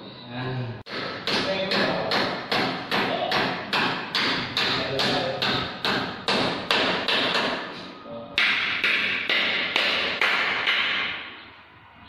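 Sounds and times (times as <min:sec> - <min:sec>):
hammer knocking on wood: 0:00.9 - 0:07.7, 0:08.4 - 0:11.2.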